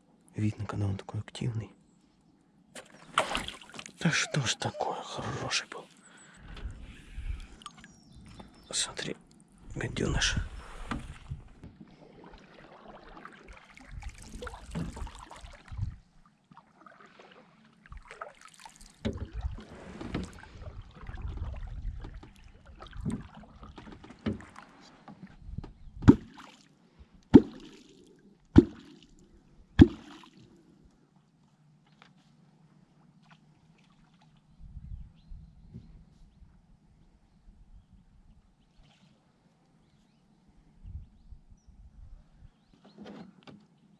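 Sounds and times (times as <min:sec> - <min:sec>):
sharp pops in water: 0:02.8 - 0:04.0, 0:26.0 - 0:26.6, 0:27.3 - 0:29.1, 0:29.8 - 0:30.4
wooden kwok splashing in water: 0:02.8 - 0:04.1, 0:12.1 - 0:15.9, 0:16.6 - 0:24.7, 0:26.0 - 0:26.7, 0:27.3 - 0:29.2, 0:29.8 - 0:30.4.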